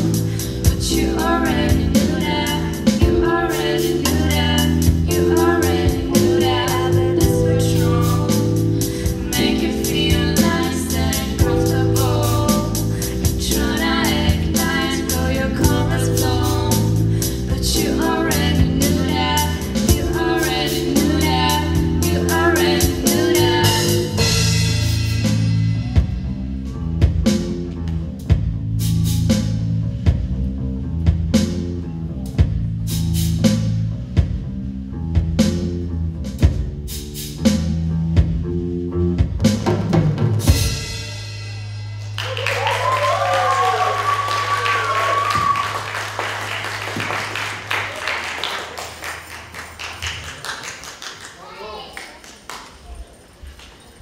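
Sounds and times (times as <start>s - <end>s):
bass guitar: 0.0s - 48.0s
keyboard: 0.0s - 48.0s
drum kit beat: 0.0s - 49.9s
women singing: 0.6s - 24.2s.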